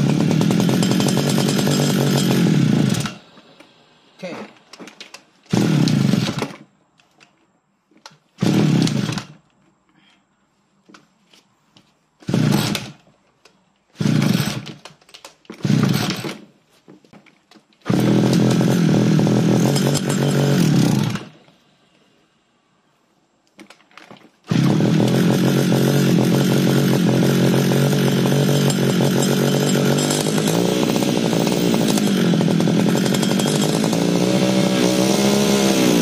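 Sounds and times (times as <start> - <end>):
brush cutter engine starting: 0.0 - 3.4, 4.5 - 6.7, 8.4 - 9.4, 12.2 - 13.1, 13.9 - 16.5, 17.6 - 21.4, 23.7 - 36.0.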